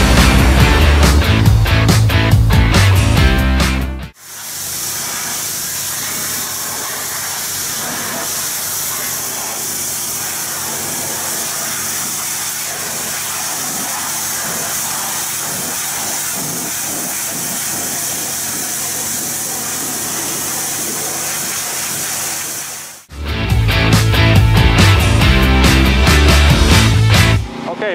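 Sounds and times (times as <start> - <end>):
engine running: 0.0 - 27.9
pressure washer jet hissing on metal: 4.1 - 23.1.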